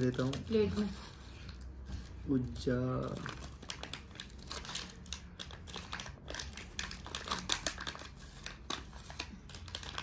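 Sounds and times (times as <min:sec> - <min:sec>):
chip wrapper crinkling: 0:03.0 - 0:10.0.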